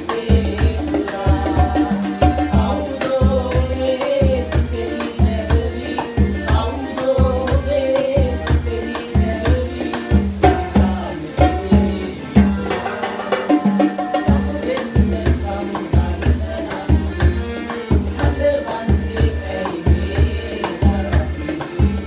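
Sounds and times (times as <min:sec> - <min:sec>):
hand drums: 0:00.0 - 0:22.0
men singing together: 0:00.0 - 0:22.0
piano accordion: 0:00.0 - 0:22.0.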